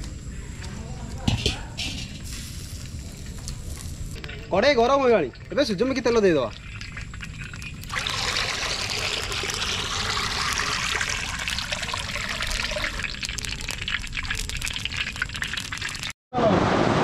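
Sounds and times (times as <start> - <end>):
oil pouring trickle: 4.2 - 16.1.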